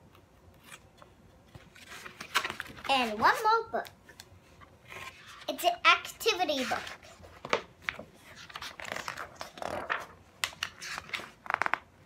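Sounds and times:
paper rustling: 1.5s - 3.5s, 6.5s - 11.8s.

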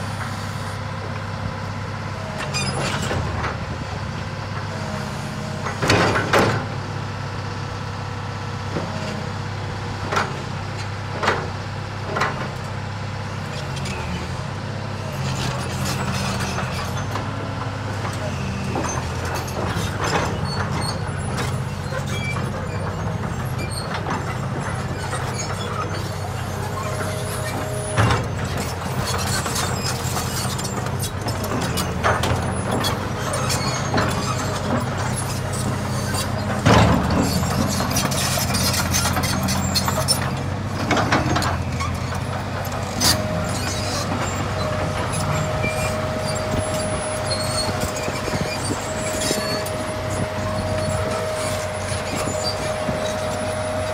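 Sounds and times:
excavator diesel engine running: 0.0s - 53.9s
excavator bucket clanking: 18.8s - 53.7s.

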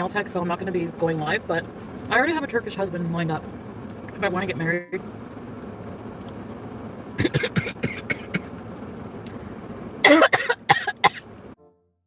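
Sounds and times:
car interior hum: 0.0s - 11.6s
woman coughing: 7.2s - 8.5s, 10.0s - 11.2s.

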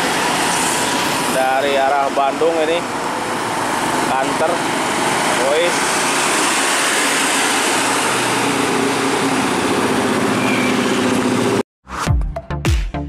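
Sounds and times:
traffic: 0.0s - 11.6s
truck diesel engine driving past: 0.0s - 11.6s
electronic dance music: 11.9s - 13.0s.

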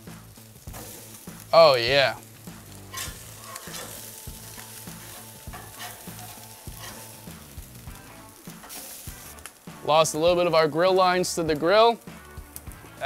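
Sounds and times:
fish sizzling on a grill: 0.0s - 13.0s
metal spatula scraping grates: 0.7s - 1.2s, 2.8s - 7.7s, 8.5s - 9.3s
spatula clicking on grate: 2.9s - 7.2s.

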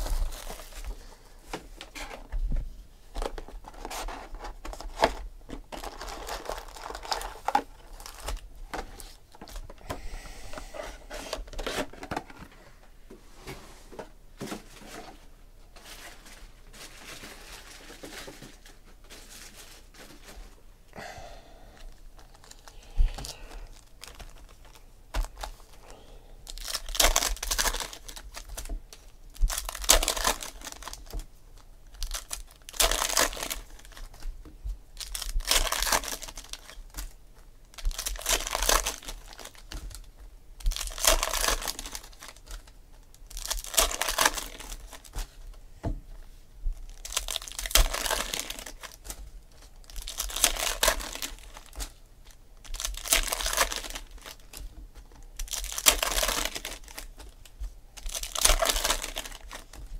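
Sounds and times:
foil wrappers tearing and crinkling: 3.2s - 8.4s, 22.2s - 25.7s, 26.5s - 31.2s, 31.8s - 34.2s, 35.0s - 40.0s, 40.6s - 45.4s, 46.9s - 52.0s, 52.6s - 54.6s, 55.3s - 59.9s.

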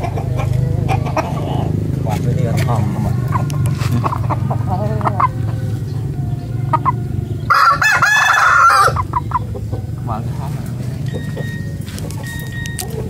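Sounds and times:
roosters clucking: 0.0s - 13.0s
rooster crowing: 6.9s - 9.1s.

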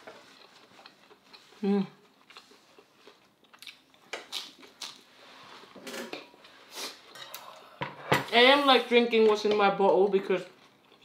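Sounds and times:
chewing with soft crunching: 0.0s - 5.1s, 10.5s - 11.0s.

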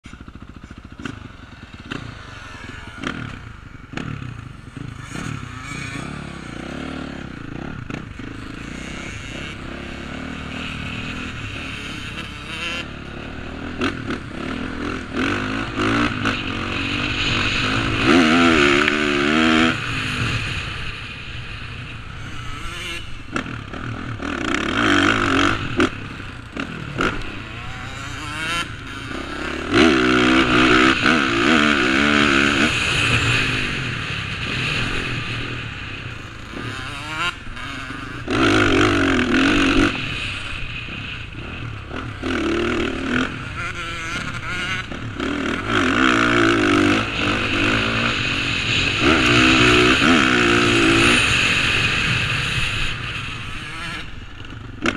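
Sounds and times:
dirt bike engine revving: 0.0s - 54.9s.

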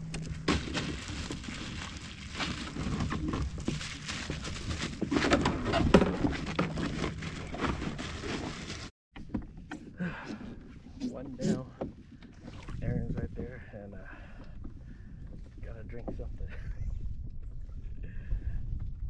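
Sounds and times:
gear knocking and scraping on kayak: 0.0s - 9.9s.

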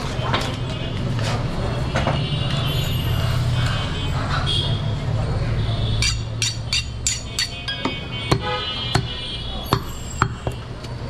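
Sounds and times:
knife honing strokes: 6.0s - 10.6s
ringing metal knocks: 6.0s - 10.6s.

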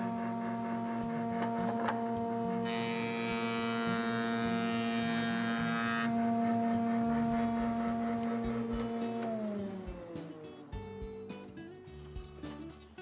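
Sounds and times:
jointer cutting wood: 0.0s - 10.2s
jointer motor hum: 0.0s - 10.3s.

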